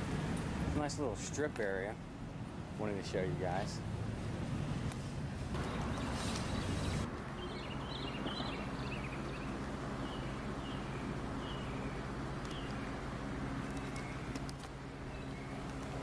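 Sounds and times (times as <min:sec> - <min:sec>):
steady low hum: 0:00.0 - 0:16.0
small birds chirping: 0:05.6 - 0:16.0.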